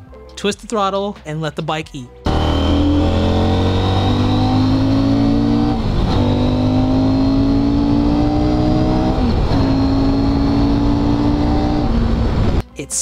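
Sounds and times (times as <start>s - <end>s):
motorcycle engine accelerating: 2.3s - 12.6s.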